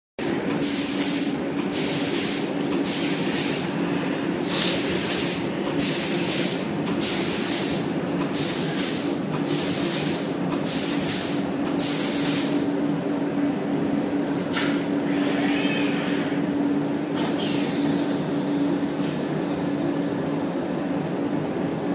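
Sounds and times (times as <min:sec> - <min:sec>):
paint spray gun hissing bursts: 0:08.4 - 0:12.6.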